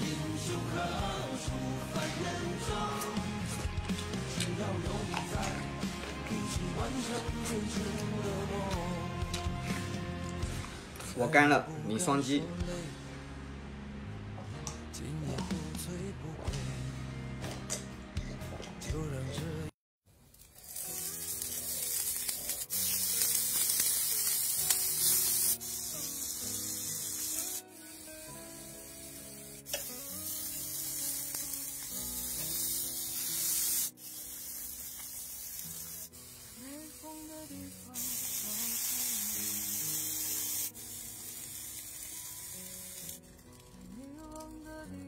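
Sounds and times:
background music: 0.0s - 19.7s, 20.8s - 45.0s
oil sizzling on hot grill: 20.2s - 44.6s.

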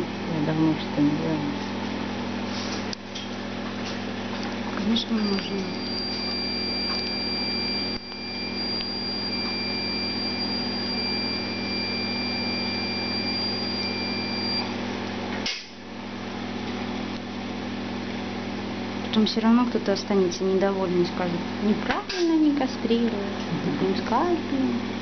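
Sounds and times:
low electrical hum: 0.0s - 25.0s
high activation tone: 4.8s - 14.9s.

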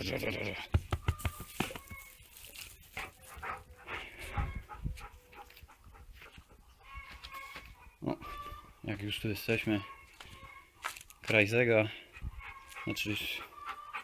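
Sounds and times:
small dog sounds: 12.1s - 14.0s.

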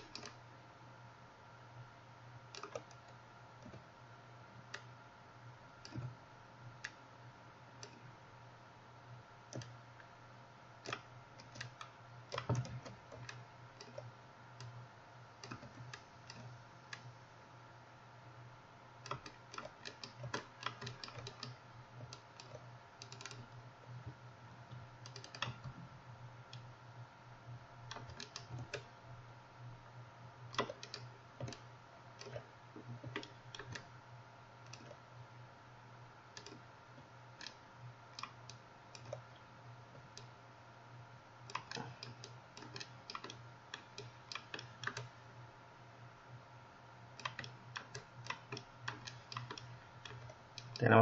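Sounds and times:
keyboard and mouse clicking: 0.0s - 0.4s, 2.5s - 3.8s, 5.8s - 6.1s, 9.5s - 9.8s, 10.8s - 14.8s, 15.4s - 17.0s, 19.0s - 23.5s, 25.0s - 25.8s, 27.9s - 28.9s, 30.5s - 31.6s, 32.2s - 32.4s, 33.0s - 33.9s, 36.4s - 36.6s, 38.2s - 39.2s, 41.5s - 45.1s, 47.2s - 50.8s
steady low hum: 0.0s - 51.0s.

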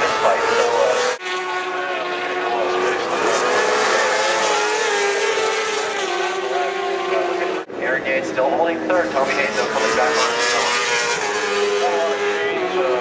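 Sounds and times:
racing motorcycle engines revving: 0.0s - 13.0s.

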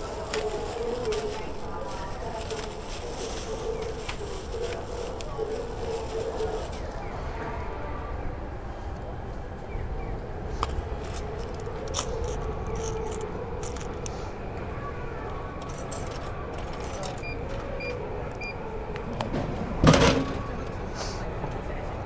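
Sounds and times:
coins clinking into machine: 11.0s - 14.0s, 15.6s - 17.3s.

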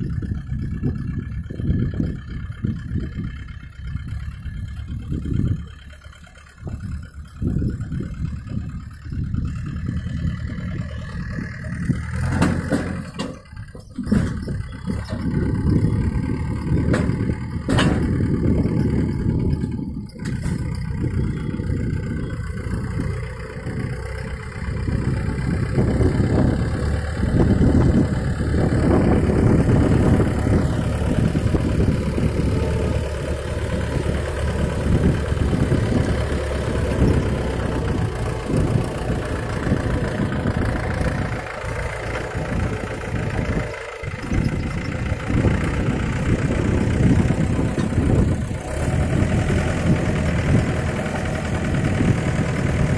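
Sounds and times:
tractor diesel engine running: 0.0s - 52.9s
sharp knocks: 17.7s - 18.1s.

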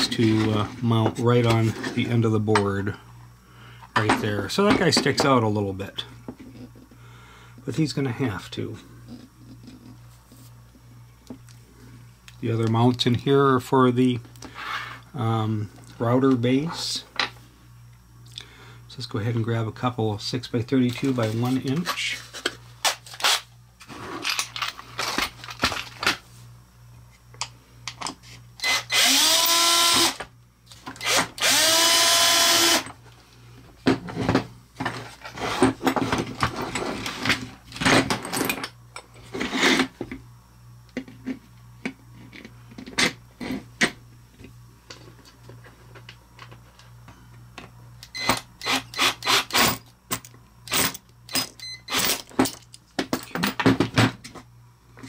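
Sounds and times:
power drill whining: 28.6s - 30.2s, 31.0s - 32.9s, 48.2s - 49.7s.

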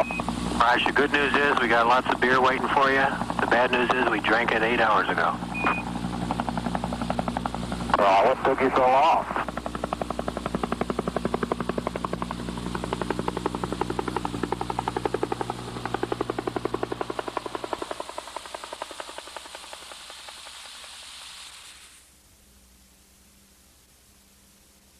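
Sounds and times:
helicopter rotor chopping: 0.0s - 22.0s
faint tape hiss: 20.5s - 24.9s.

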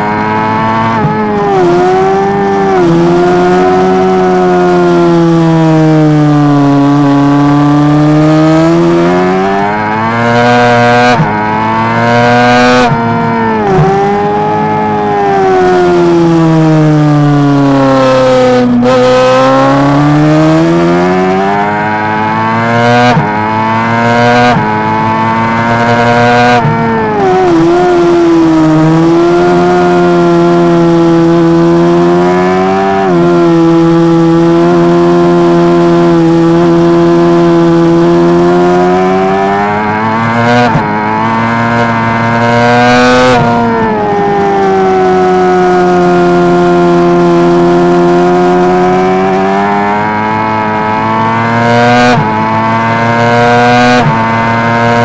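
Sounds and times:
motorcycle engine at high revs: 0.0s - 55.0s.

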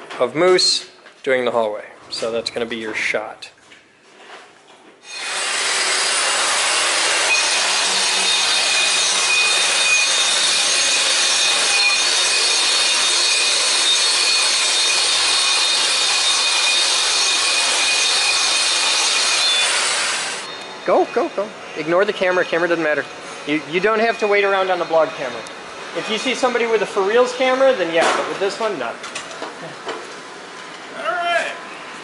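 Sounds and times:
concrete floor grinder running: 5.2s - 20.5s.

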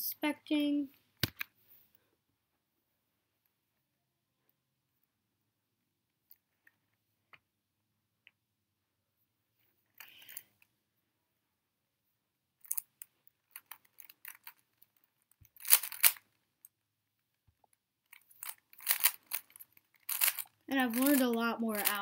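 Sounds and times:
puzzle cube clacking: 12.6s - 16.3s, 18.2s - 22.0s.

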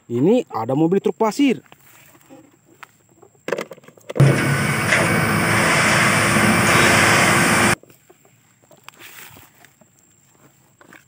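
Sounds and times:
dump truck engine running: 4.2s - 7.8s
steady whine: 4.2s - 7.8s.

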